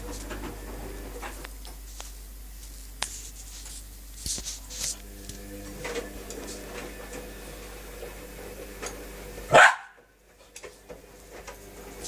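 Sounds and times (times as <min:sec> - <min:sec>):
washing machine humming: 0:00.0 - 0:12.0
dog barking: 0:09.5 - 0:10.0.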